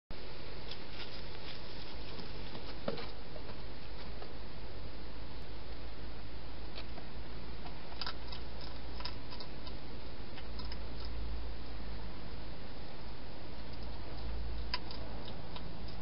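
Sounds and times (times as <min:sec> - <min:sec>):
low hum and hiss: 0:00.1 - 0:16.0
hedgehog eating clicks: 0:07.6 - 0:11.2, 0:13.6 - 0:16.0.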